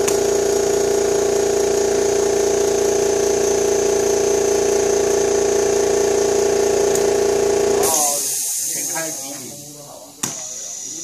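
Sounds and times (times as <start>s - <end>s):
electric motor hum: 0.0s - 8.1s.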